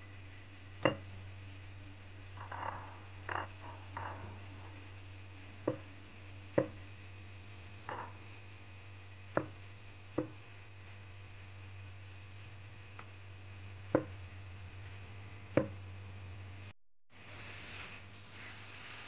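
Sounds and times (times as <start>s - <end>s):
low steady hum: 0.0s - 19.0s
cleaver knocking cutting board: 0.8s - 1.1s, 5.6s - 5.9s, 6.6s - 6.8s, 9.3s - 9.6s, 10.2s - 10.4s, 14.0s - 14.2s, 15.6s - 15.8s.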